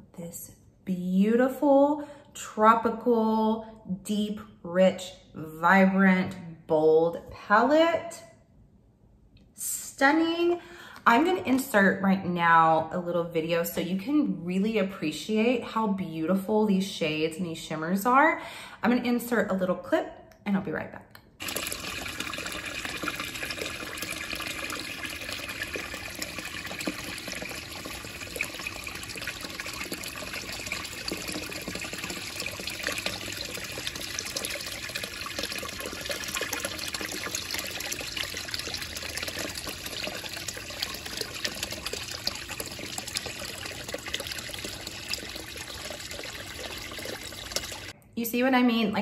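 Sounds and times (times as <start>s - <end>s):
fountain water falling into pool: 21.4s - 47.9s.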